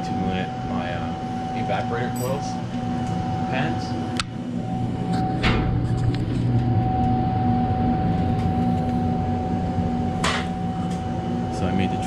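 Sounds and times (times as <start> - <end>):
refrigeration machinery humming: 0.0 - 12.0.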